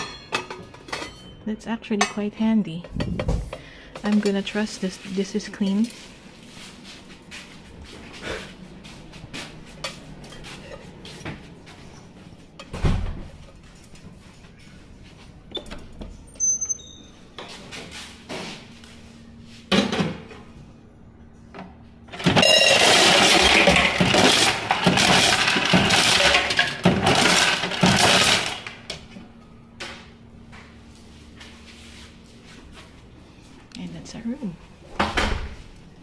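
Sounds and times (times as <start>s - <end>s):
ice machine humming: 22.0s - 29.7s
ice cubes clattering into bucket: 22.1s - 28.9s.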